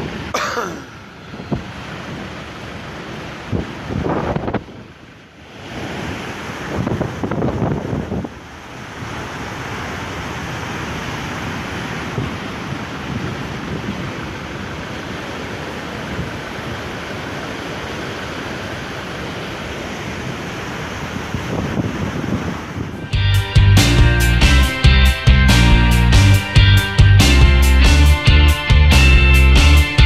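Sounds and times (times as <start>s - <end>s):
surf washing over pavement: 0.0s - 23.2s.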